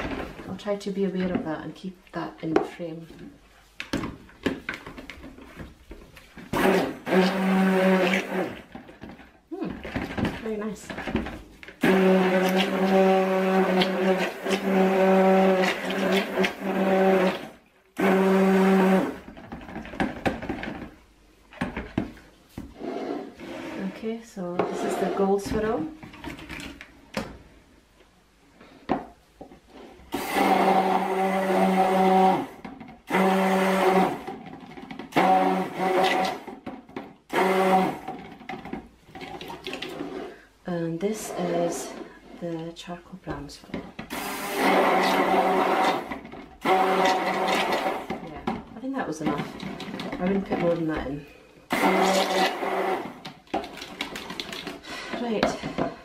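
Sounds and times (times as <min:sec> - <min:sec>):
stick blender motor hum: 0:06.5 - 0:09.0, 0:11.8 - 0:20.8, 0:30.1 - 0:36.7, 0:37.3 - 0:38.6, 0:44.0 - 0:48.6, 0:51.7 - 0:54.6.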